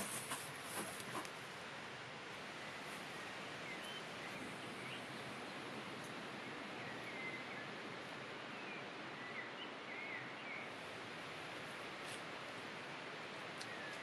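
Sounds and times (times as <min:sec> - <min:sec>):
steady outdoor hiss: 0:00.0 - 0:14.0
bird chirps: 0:03.6 - 0:05.8, 0:06.4 - 0:07.8.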